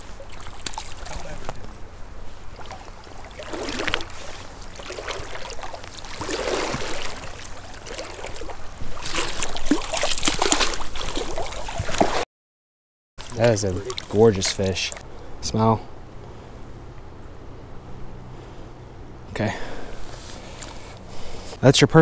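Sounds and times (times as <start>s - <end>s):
water splashing and sloshing: 0.0s - 12.2s, 13.2s - 15.3s.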